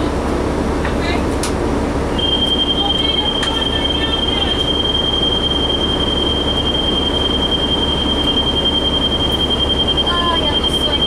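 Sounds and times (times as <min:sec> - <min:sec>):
bus engine and road rumble: 0:00.0 - 0:11.0
high-pitched whine: 0:02.1 - 0:11.0.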